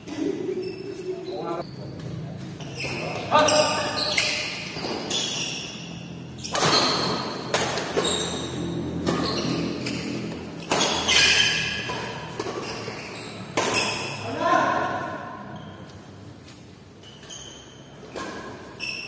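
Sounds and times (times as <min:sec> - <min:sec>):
rackets hitting shuttlecock: 0:04.2 - 0:08.4, 0:09.0 - 0:14.2.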